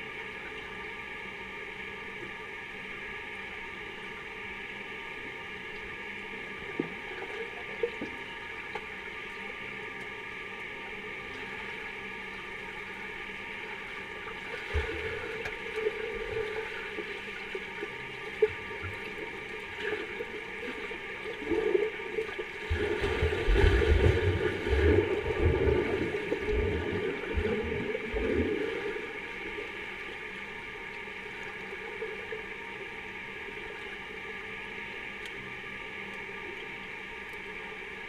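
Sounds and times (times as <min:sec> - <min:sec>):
steady hum: 0:00.0 - 0:38.0
underwater water churning: 0:06.3 - 0:34.0.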